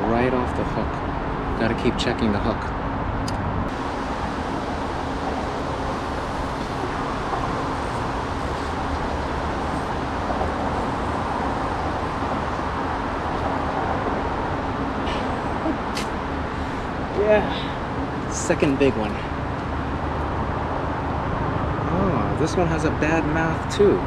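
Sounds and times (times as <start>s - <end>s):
road traffic drone: 0.0s - 24.0s.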